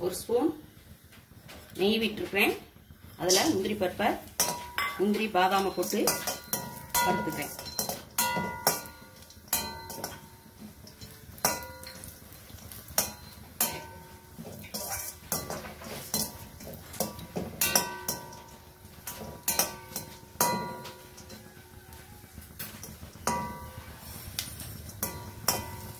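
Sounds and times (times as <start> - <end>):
metal spoon scraping pan: 4.4 - 21.5, 22.4 - 25.9.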